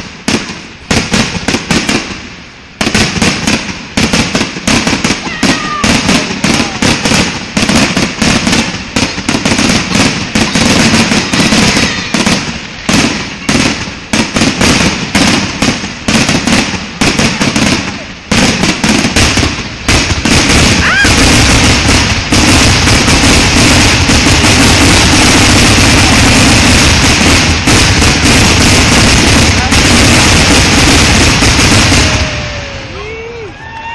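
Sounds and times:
fireworks bangs and crackles: 0.0 - 33.9
firework shell whistle: 10.4 - 12.7.

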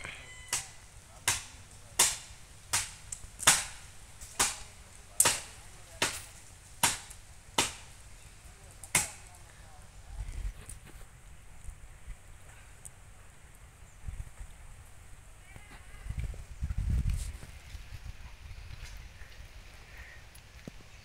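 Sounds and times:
blade chopping into tree: 0.6 - 7.9, 8.8 - 9.3.

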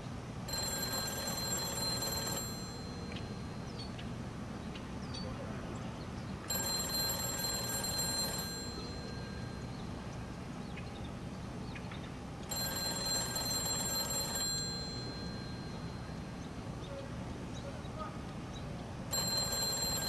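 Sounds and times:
payphone ringing: 0.0 - 3.7, 6.5 - 10.0, 12.5 - 16.5, 19.1 - 20.0
low background noise: 0.0 - 20.0.

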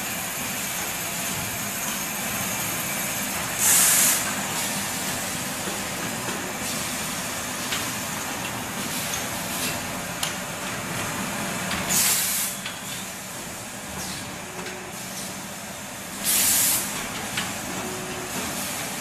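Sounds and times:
compressed air hiss: 3.6 - 4.3, 11.9 - 12.6, 16.2 - 17.0
machine humming and clicking: 4.2 - 16.2, 16.8 - 19.0.

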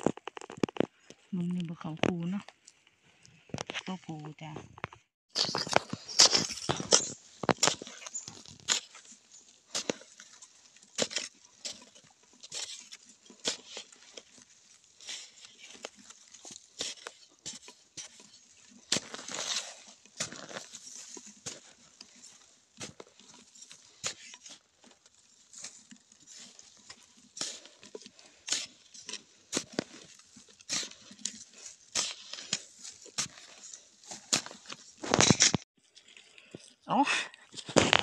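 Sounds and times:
loose earth crumbling: 0.0 - 2.8, 3.4 - 36.8, 37.4 - 38.0
metal spade chopping into soil: 5.4 - 24.6, 26.4 - 35.6.

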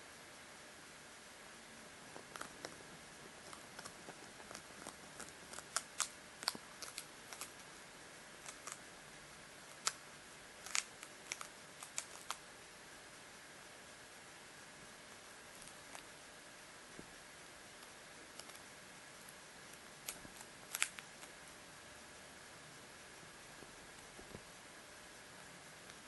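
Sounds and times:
hamster crunching seeds: 2.0 - 8.9, 9.6 - 12.5, 15.4 - 16.2, 17.8 - 21.5.

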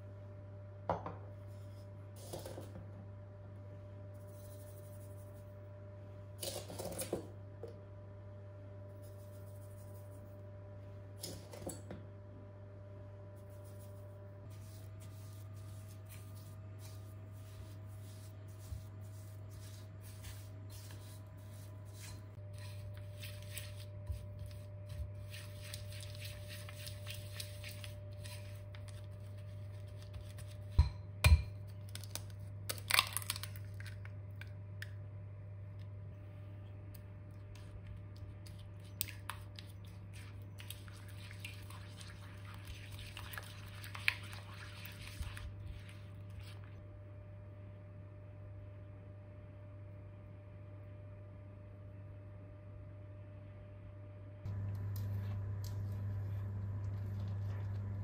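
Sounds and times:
steady low hum: 0.0 - 58.0
spatula stirring in bowl: 13.4 - 31.0, 37.5 - 46.8
eggshell crackle: 31.6 - 35.0.

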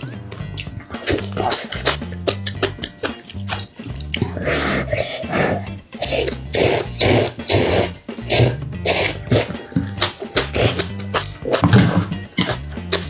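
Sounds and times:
background music with bass line: 0.0 - 13.0
noodles slurping: 0.0 - 13.0.

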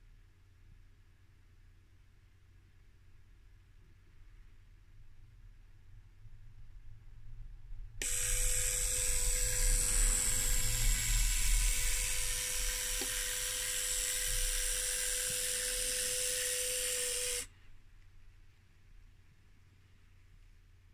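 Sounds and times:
model train motor whine: 8.0 - 17.5.

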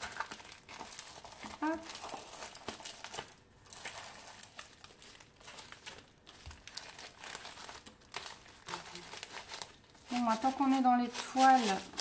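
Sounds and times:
plastic sleeve crinkling: 0.0 - 12.0.

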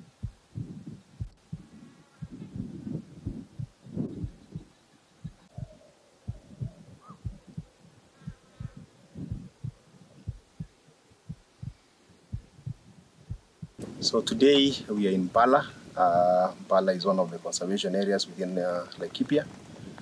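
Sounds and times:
low thumps and rumbles: 0.2 - 7.7, 8.3 - 14.2.

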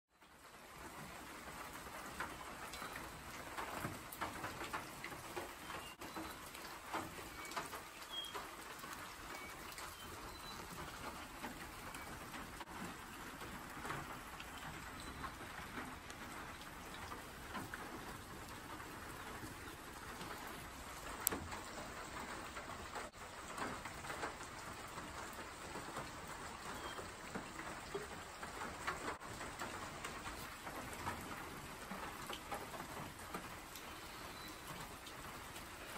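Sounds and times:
rain falling on foliage: 0.1 - 35.9
water drips: 0.2 - 35.9
faint high bird chirps: 7.3 - 8.5, 9.3 - 10.7, 33.9 - 34.8.

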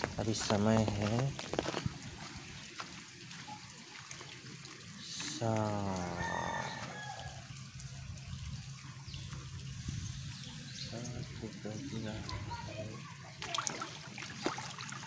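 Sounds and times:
rainwater trickling on pavement: 0.0 - 15.0
rooster crowing: 6.0 - 7.5.

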